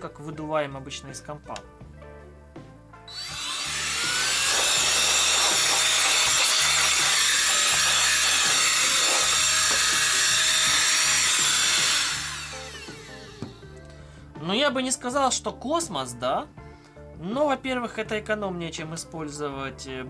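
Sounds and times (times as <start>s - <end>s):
air duster motor whine: 3.1s - 13.8s.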